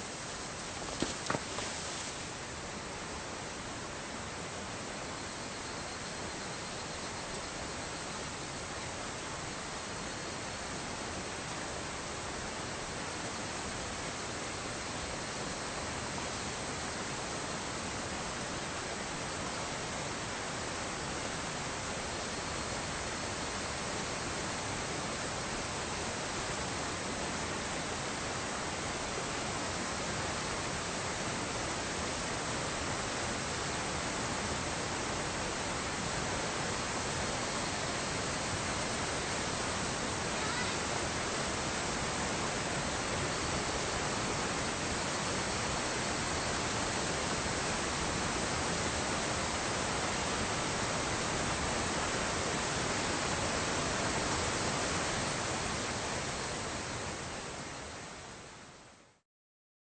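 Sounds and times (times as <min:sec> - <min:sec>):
water rushing over rocks: 0:00.1 - 0:02.8.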